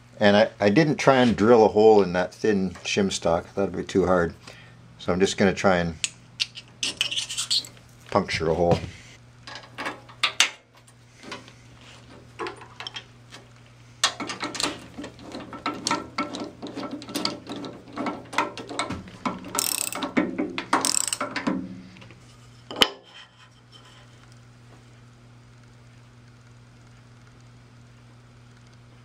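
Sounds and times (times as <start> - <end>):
ratchet wrench clicking: 19.5 - 20.2, 20.8 - 21.4.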